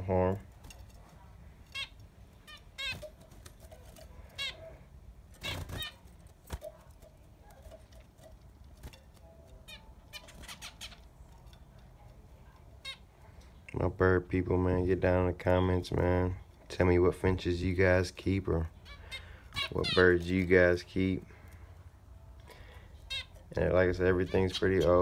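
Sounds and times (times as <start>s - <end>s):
finches calling: 9.6s - 11.2s, 18.7s - 21.5s, 22.6s - 25.0s.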